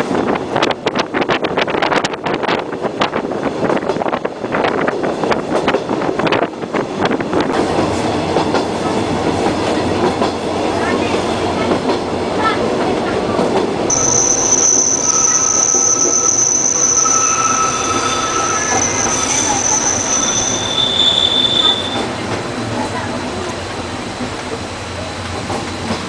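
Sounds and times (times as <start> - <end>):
train wheels rumbling on track: 0.0 - 26.0
high wheel squeal: 13.9 - 22.2.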